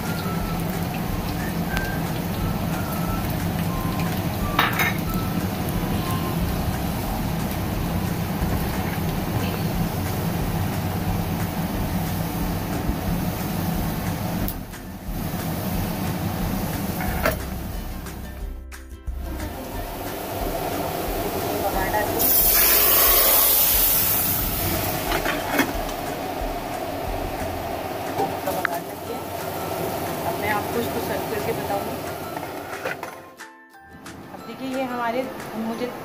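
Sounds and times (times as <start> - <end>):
hot oil sizzling: 0.0 - 33.0
low hum: 23.8 - 30.4.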